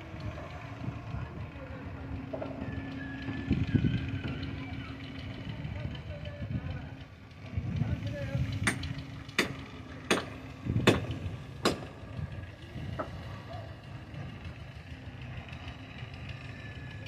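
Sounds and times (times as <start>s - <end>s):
low steady rumble: 0.0s - 17.0s
sharp knocks: 8.6s - 12.0s.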